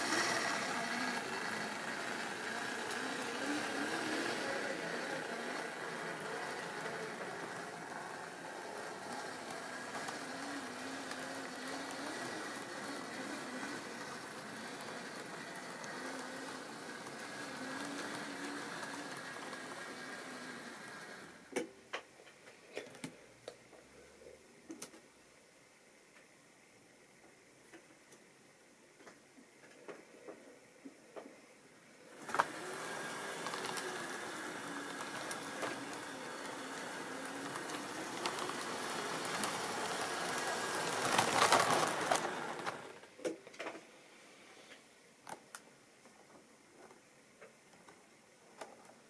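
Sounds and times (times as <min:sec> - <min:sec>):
model train running on track: 0:00.0 - 0:21.6, 0:32.1 - 0:43.1.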